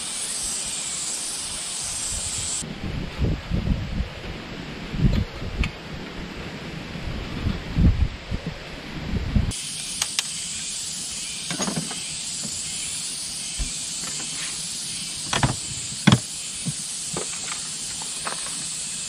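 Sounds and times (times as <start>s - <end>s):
steady hiss: 0.0s - 7.2s, 8.0s - 19.0s
low wind rumble: 1.8s - 9.6s, 15.1s - 17.0s.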